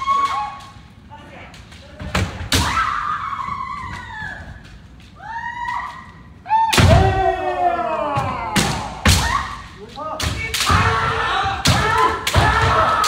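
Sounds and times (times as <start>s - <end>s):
fencers shouting: 5.2s - 13.0s.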